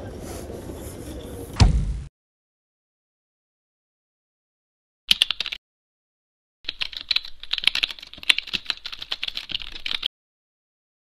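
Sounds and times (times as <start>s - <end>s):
keyboard typing: 5.1s - 5.6s, 6.7s - 10.1s.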